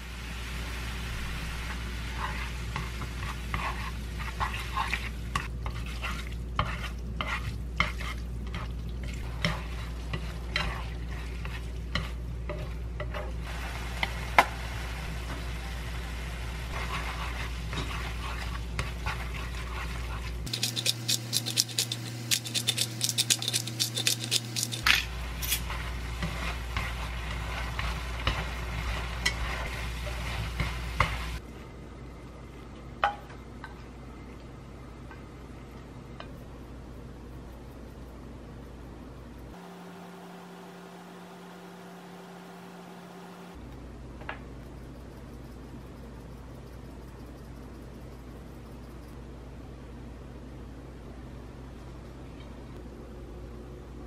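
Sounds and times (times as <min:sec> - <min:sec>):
food sizzling in a frying pan: 0:00.0 - 0:31.4
steady low hum: 0:01.0 - 0:54.0.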